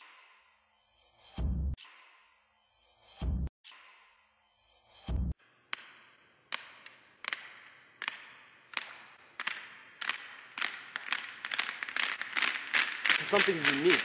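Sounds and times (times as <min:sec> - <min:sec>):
sharp hand claps with echo: 0:05.8 - 0:14.0.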